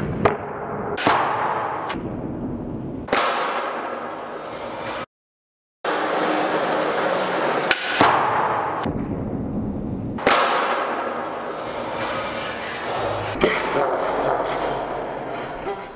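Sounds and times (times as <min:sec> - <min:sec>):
skateboard wheels rolling on concrete: 0:05.9 - 0:07.7.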